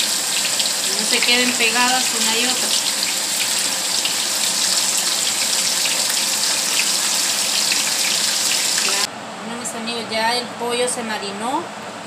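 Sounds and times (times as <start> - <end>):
slices frying in hot oil: 0.0 - 9.1.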